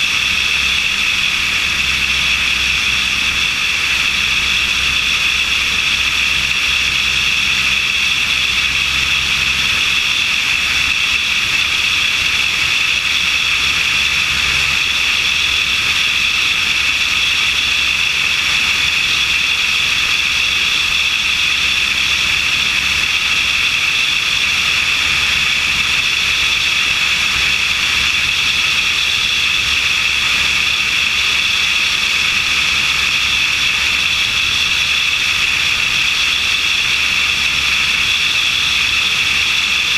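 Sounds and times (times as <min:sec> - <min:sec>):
engine and propeller drone: 0:00.0 - 0:39.9.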